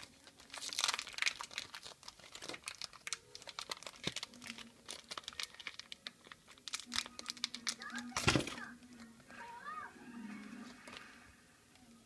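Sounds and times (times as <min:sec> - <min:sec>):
plastic bag and tape crinkling: 0:00.0 - 0:09.1.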